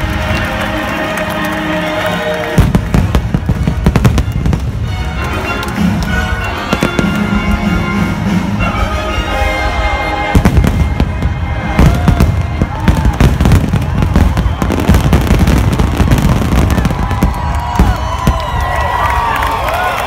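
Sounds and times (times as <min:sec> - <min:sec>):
music playing: 0:00.0 - 0:17.6
crowd cheering: 0:00.0 - 0:20.0
fireworks booming and cracking: 0:02.4 - 0:06.0, 0:10.3 - 0:19.0.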